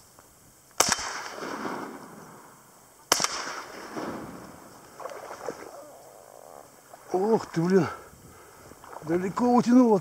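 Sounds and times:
shotgun shots: 0.8s - 2.4s, 3.1s - 5.2s.

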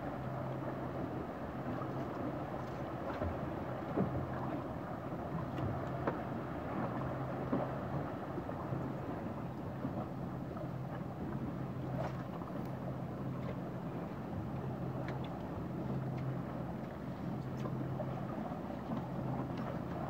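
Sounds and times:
boat engine humming: 0.0s - 20.0s
water noise: 0.0s - 20.0s
wind: 0.0s - 20.0s.

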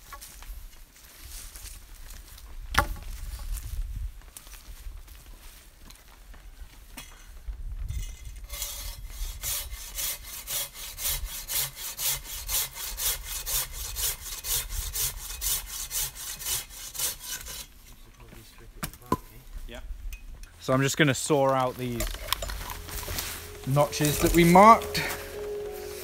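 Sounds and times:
hand saw cutting wood: 8.4s - 18.0s
quiet rustling: 17.7s - 26.0s.

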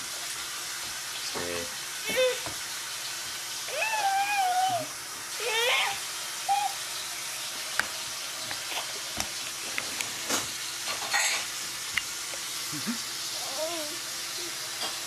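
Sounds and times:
baby squealing and cooing: 3.7s - 6.8s.

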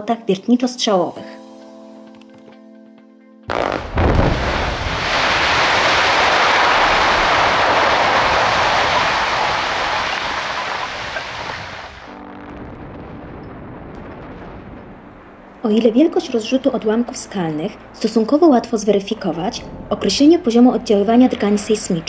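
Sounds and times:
sharp blast report: 3.5s - 5.2s
rock face collapsing rush: 3.5s - 15.2s
deep explosion boom: 3.5s - 15.6s.

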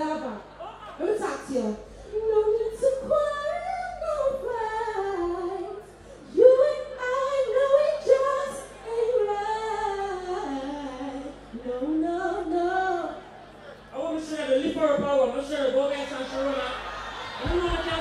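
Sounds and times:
woman singing into a microphone: 1.0s - 13.2s.

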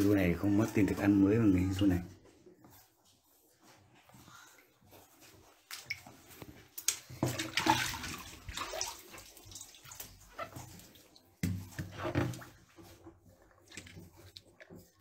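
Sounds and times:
water splashing in tank: 5.5s - 15.0s.

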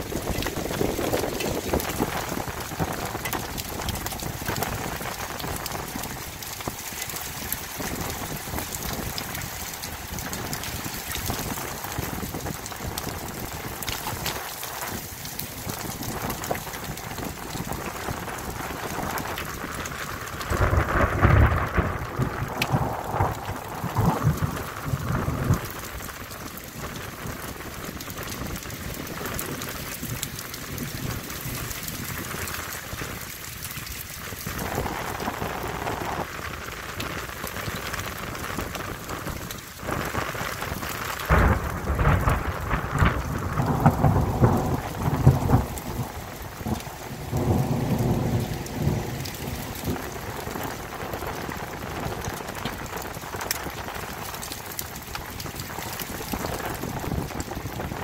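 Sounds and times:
heavy rain on concrete: 0.0s - 58.0s
thunder rumbling: 0.0s - 58.0s.

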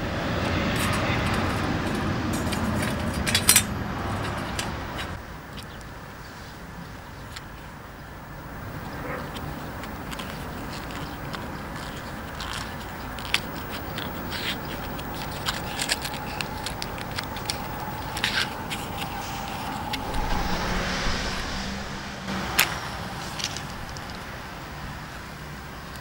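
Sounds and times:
matchbox clicks and rustles: 10.1s - 19.7s
low rumble: 17.0s - 25.0s.

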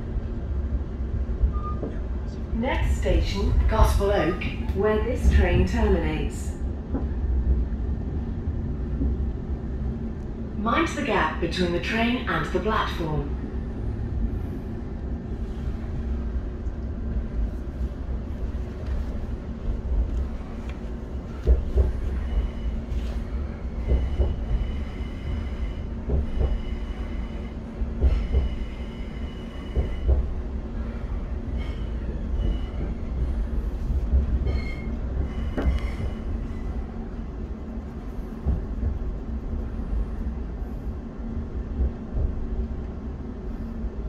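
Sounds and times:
train rumble and hum: 0.0s - 44.0s
train knocks: 21.4s - 22.6s, 23.8s - 24.8s, 26.0s - 30.4s, 34.2s - 36.2s, 38.4s - 39.2s.

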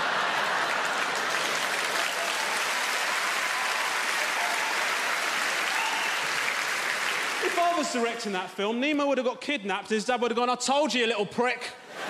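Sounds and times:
audience laughing: 0.0s - 1.6s
audience clapping: 0.0s - 8.3s.

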